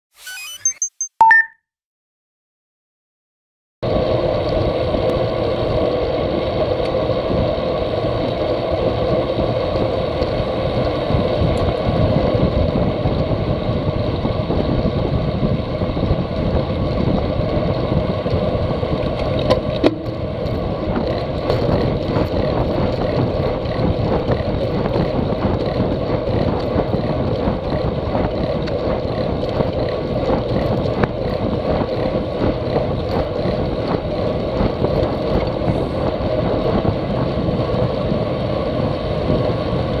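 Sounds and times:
bike tyres on asphalt: 3.9 - 40.0
wind over microphone: 3.9 - 40.0.

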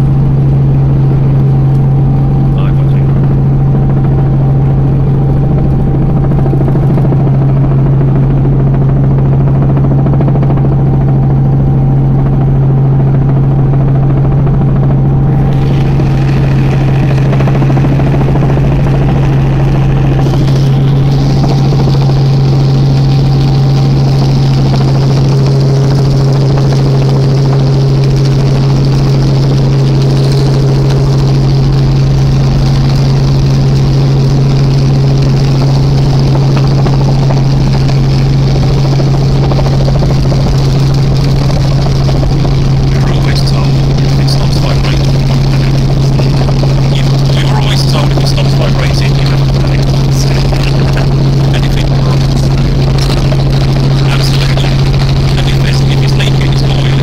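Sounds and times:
helicopter engine and rotors drone: 0.0 - 57.0
high-pitched noise: 15.3 - 18.7, 43.0 - 57.0.

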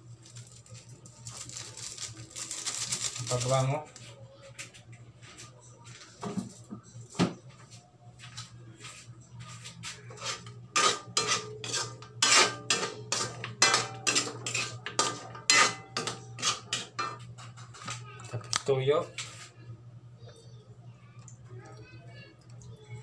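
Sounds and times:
metal spatula scraping wok: 10.1 - 17.8.

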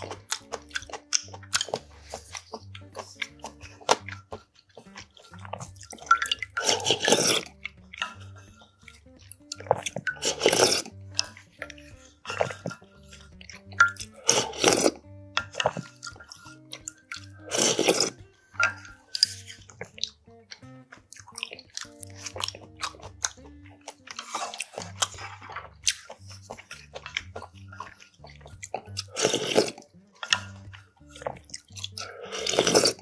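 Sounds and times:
chewing: 0.0 - 33.0
slurping: 0.0 - 33.0
soft background music: 0.0 - 33.0
utensils clicking on metal pot: 0.0 - 33.0.

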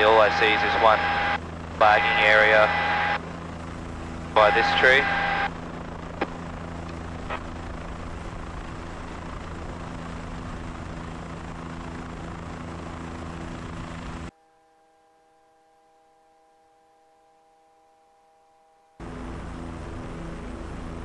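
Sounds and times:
helicopter drone: 0.0 - 14.3, 19.0 - 21.0
faint steady hum: 0.0 - 21.0.

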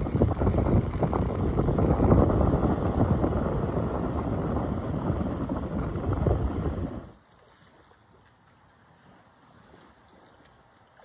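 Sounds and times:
gusty wind buffeting microphone: 0.0 - 7.2
small waves washing onto sand: 0.0 - 10.9.

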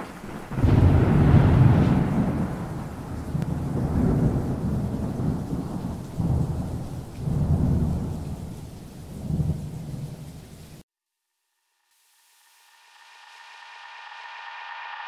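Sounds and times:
low rolling thunder: 0.0 - 10.8
rain: 0.0 - 10.8, 11.8 - 15.0.

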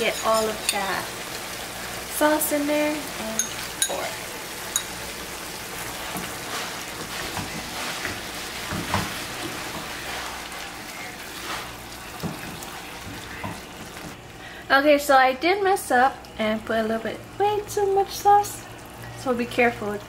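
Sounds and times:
food sizzling in frying pan: 0.0 - 14.4.

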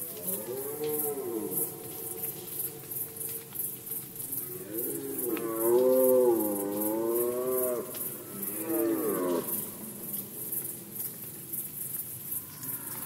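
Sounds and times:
red deer stag roaring: 0.1 - 3.4.

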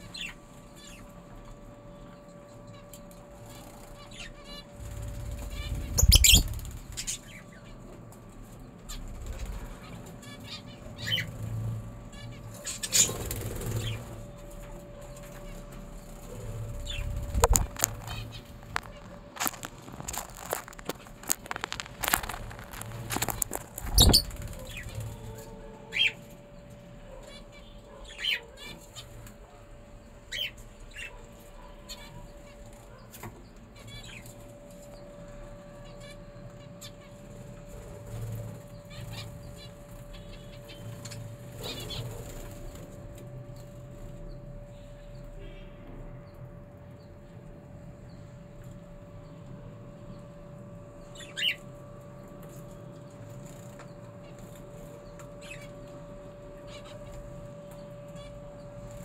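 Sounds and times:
small birds chirping: 0.0 - 7.9, 8.6 - 59.0
faint steady hum: 0.0 - 59.0
parrots chirping: 5.4 - 7.5, 12.2 - 14.4, 16.4 - 26.2, 27.1 - 29.1, 51.0 - 51.7.

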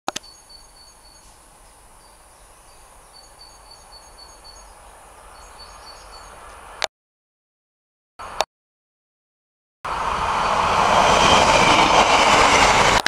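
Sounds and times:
bird high chirps: 0.2 - 6.6
distant railcar rumble: 0.2 - 6.9, 8.2 - 8.4, 9.9 - 13.0.

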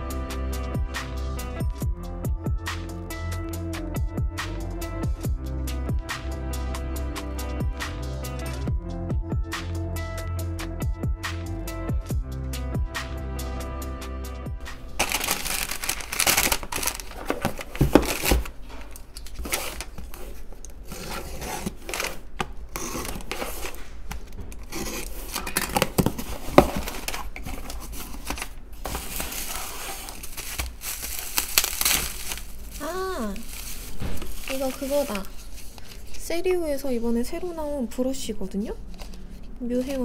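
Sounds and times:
plastic and bubble wrap crinkling: 14.7 - 36.6
knocks of box and contents: 15.0 - 19.9, 25.3 - 32.4.

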